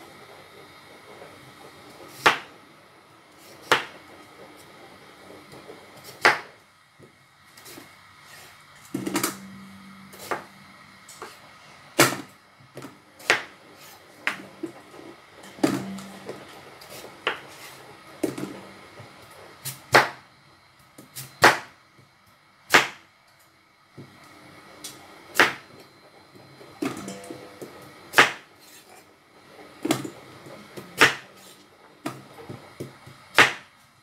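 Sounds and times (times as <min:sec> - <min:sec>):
knife chopping carrot on board: 0:06.2 - 0:06.5.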